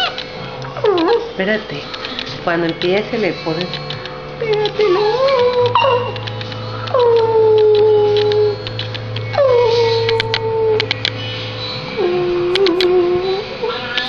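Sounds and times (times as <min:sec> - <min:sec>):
dog howling: 0:00.0 - 0:01.6, 0:03.9 - 0:14.0.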